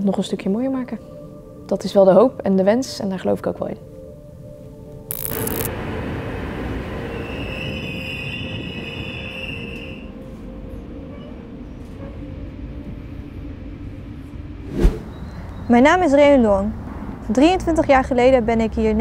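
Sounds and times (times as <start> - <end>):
high squealing tone: 5.1 - 5.7
train rumbling: 5.7 - 15.5.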